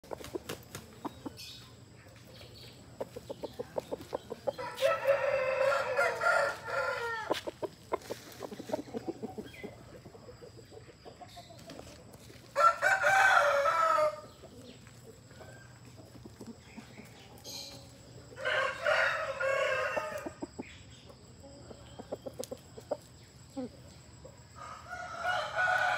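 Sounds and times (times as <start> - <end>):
rooster clucking: 2.9 - 12.0
rooster crowing: 4.6 - 7.4, 12.6 - 14.3, 18.4 - 20.4, 24.6 - 25.9.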